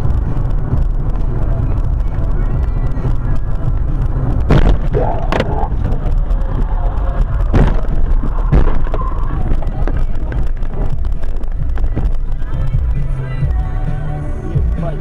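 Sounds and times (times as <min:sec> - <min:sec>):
car engine and tyres rumbling: 0:00.0 - 0:15.0.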